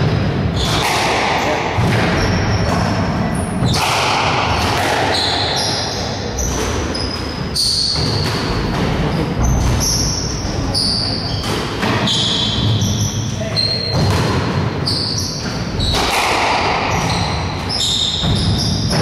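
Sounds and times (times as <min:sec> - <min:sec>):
squash ball hits echoing: 0:00.0 - 0:19.0
shoes squeaking on wooden floor: 0:05.0 - 0:14.1, 0:16.7 - 0:19.0.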